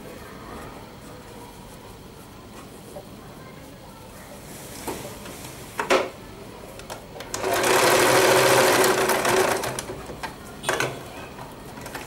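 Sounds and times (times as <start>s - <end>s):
electric sewing machine running: 7.3s - 10.0s.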